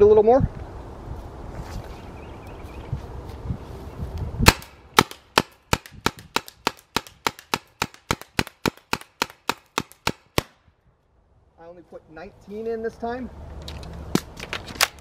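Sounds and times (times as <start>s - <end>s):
paintball marker firing pops: 4.4s - 10.6s.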